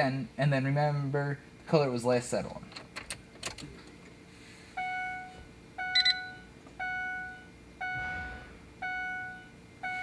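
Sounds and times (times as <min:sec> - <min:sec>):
dashboard warning chime dinging: 0:04.8 - 0:10.0
high electronic beeps: 0:04.8 - 0:10.0.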